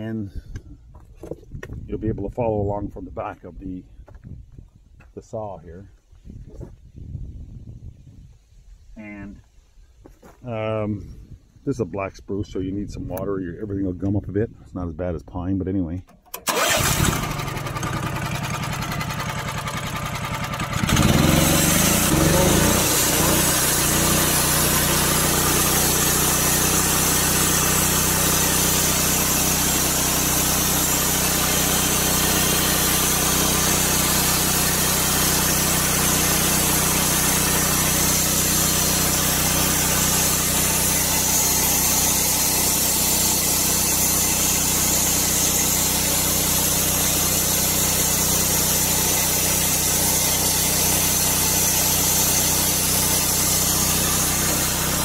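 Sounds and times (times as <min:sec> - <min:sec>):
gas engine running under load: 0:16.3 - 0:55.0
band blade sawing wood: 0:20.9 - 0:55.0.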